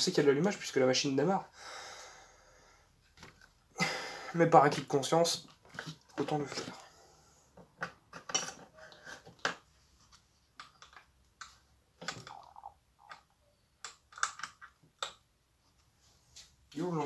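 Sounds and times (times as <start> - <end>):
plastic clicks and knocks: 10.6 - 15.2.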